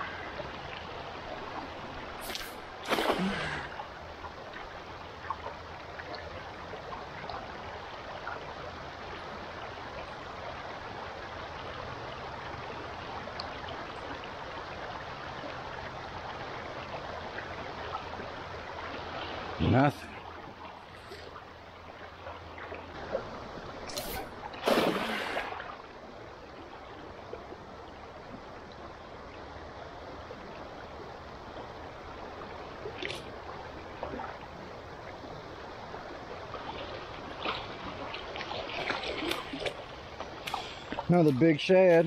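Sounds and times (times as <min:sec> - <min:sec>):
cast net splashing: 0:02.2 - 0:03.8, 0:23.9 - 0:25.8.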